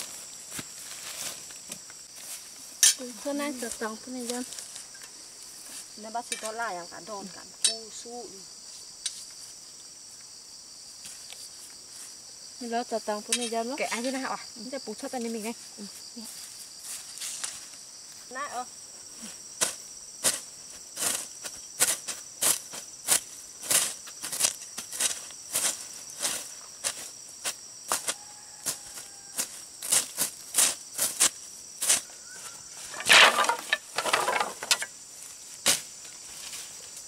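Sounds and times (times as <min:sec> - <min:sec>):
insects droning: 0:00.0 - 0:37.0
rustling scrape: 0:32.7 - 0:34.9.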